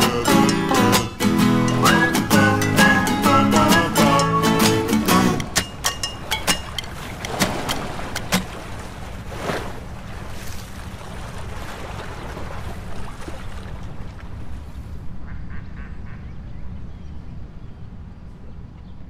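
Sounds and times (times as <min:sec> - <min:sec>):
lake water lapping and splashing: 0:04.6 - 0:15.2
sharp splash clicks: 0:05.0 - 0:09.7
low wind rumble: 0:05.5 - 0:19.0.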